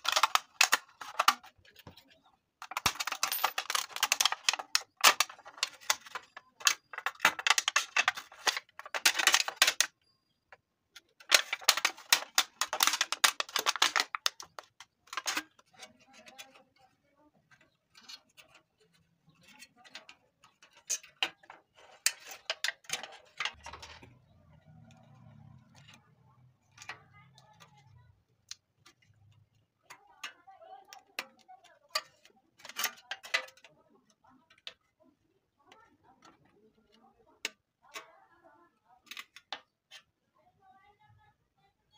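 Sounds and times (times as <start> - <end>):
aluminium can crackling: 0.0 - 1.8, 2.6 - 10.0, 11.2 - 16.6.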